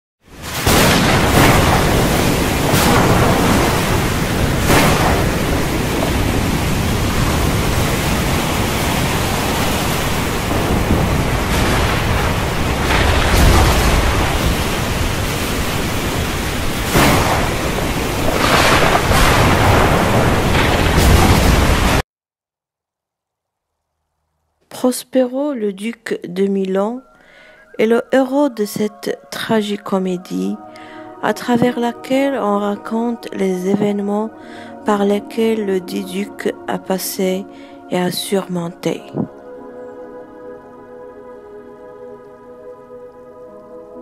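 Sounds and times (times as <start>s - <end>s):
wind and surf rushing: 0.3s - 22.0s.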